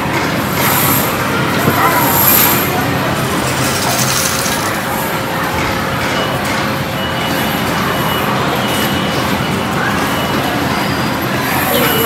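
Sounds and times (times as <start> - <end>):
faint voices: 0.0 - 12.0
background din: 1.6 - 4.8.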